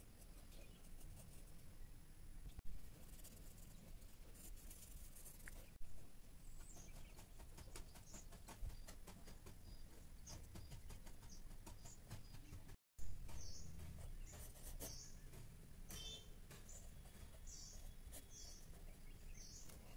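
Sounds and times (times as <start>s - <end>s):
pencil scratching on paper: 0.2s - 1.6s, 2.9s - 5.8s, 13.2s - 15.0s.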